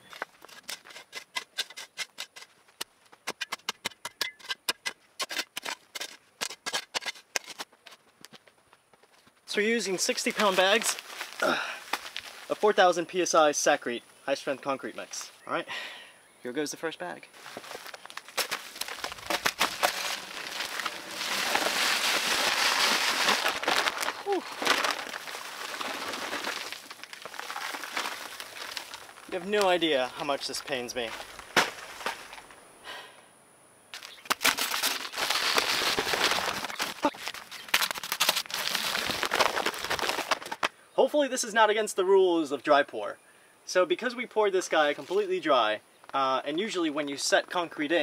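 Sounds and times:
shovel scraping into soil: 0:00.0 - 0:02.6, 0:03.2 - 0:08.0, 0:17.4 - 0:29.7
paper bag crinkling: 0:17.4 - 0:29.8, 0:34.0 - 0:40.7
dry concrete mix pouring: 0:18.5 - 0:29.3.

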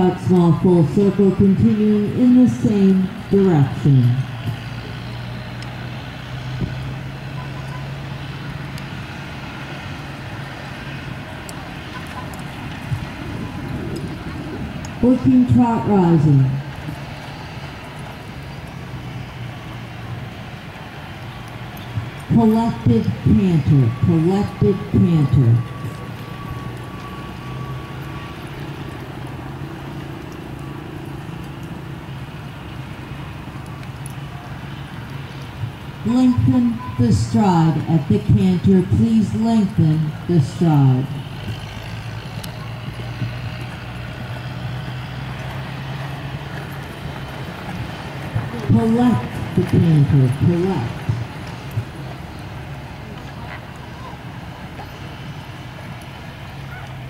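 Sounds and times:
outdoor background noise: 0:00.0 - 0:57.0
steady low rumble: 0:08.1 - 0:54.8
hoofbeats on sand: 0:41.1 - 0:53.7.

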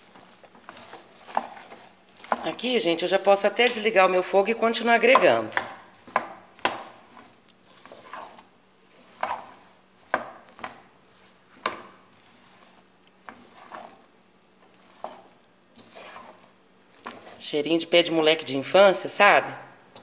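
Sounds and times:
spoon scraping metal pan: 0:00.6 - 0:02.6, 0:03.6 - 0:17.5.

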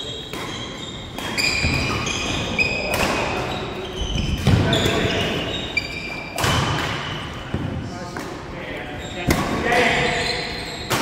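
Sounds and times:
shoes squeaking on wooden floor: 0:00.0 - 0:06.4, 0:08.9 - 0:11.0.

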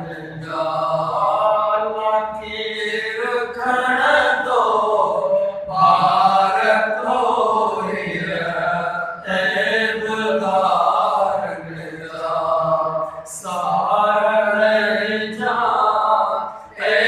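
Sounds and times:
man chanting devotional poem: 0:00.0 - 0:17.0.

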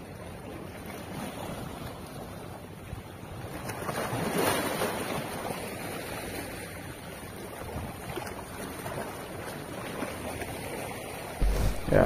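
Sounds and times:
waves splashing against rocks: 0:03.3 - 0:12.0.

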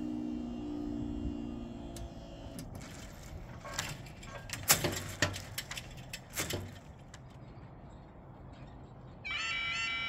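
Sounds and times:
barrier boom clicks and clunks: 0:01.8 - 0:07.4.

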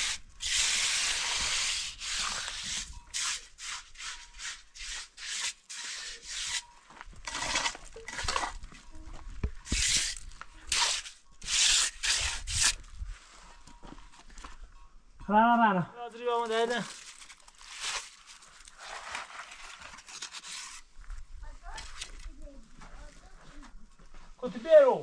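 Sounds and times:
trowel scraping mortar: 0:00.0 - 0:08.7, 0:09.6 - 0:13.0, 0:16.8 - 0:20.9.

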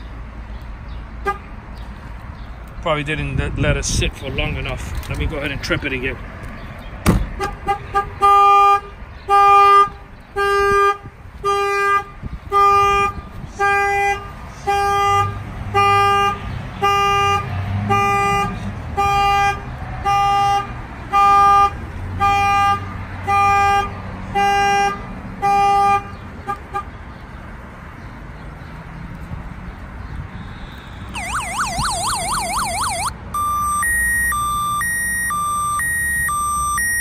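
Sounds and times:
truck horn honking: 0:07.4 - 0:26.9
security alarm: 0:31.2 - 0:37.0.

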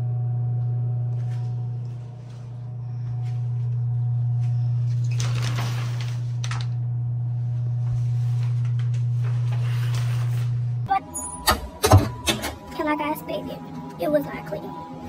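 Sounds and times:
low electrical hum: 0:00.0 - 0:15.0
shower curtain rustling: 0:04.4 - 0:06.8, 0:07.8 - 0:10.7.

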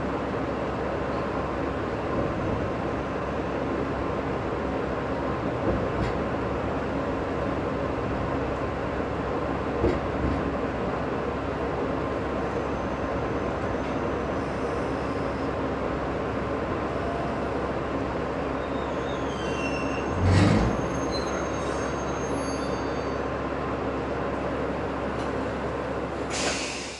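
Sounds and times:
railcar rumble: 0:00.0 - 0:26.9
high-pitched wheel squeals: 0:18.5 - 0:23.3.

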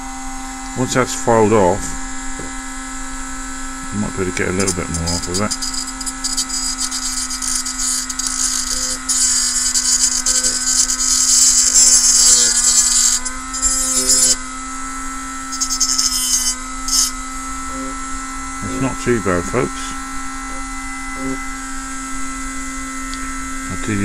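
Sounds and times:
rotary tool cutting sheet metal: 0:04.4 - 0:14.6, 0:15.3 - 0:17.9.

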